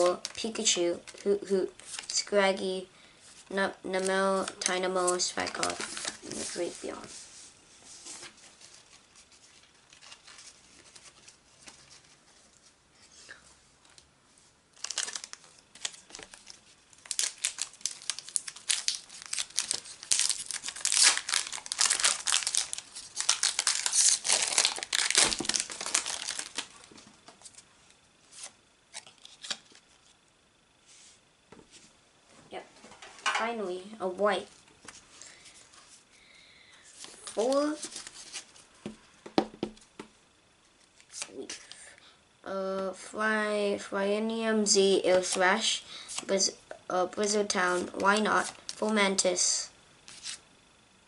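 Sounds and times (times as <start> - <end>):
foil wrapper crinkling and tearing: 8.7 - 11.9, 14.8 - 26.9.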